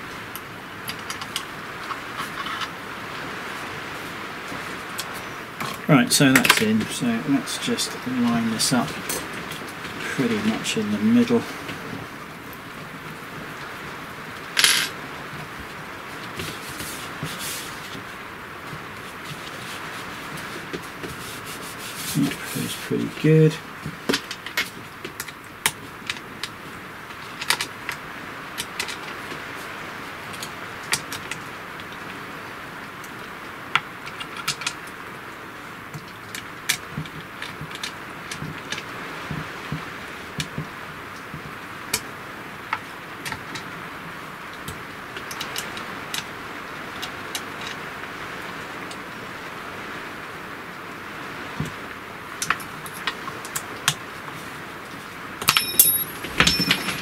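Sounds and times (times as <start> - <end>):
steady hiss: 0.0 - 57.0
small metallic clicks and clinks: 55.4 - 57.0.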